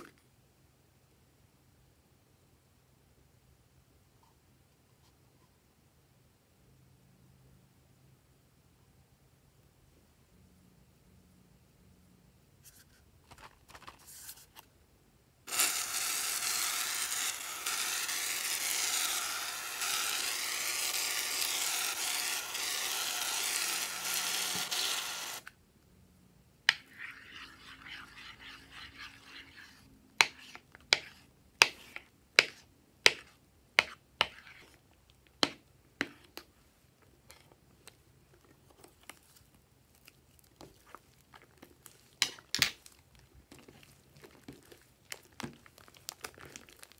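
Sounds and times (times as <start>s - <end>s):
aerosol can spraying: 15.5s - 25.5s.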